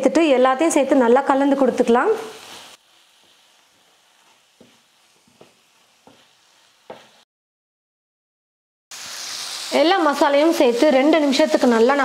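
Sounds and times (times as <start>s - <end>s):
faint sizzle in a pan: 0.0s - 7.2s, 8.9s - 12.0s
wooden spatula scraping a pan: 2.2s - 7.2s.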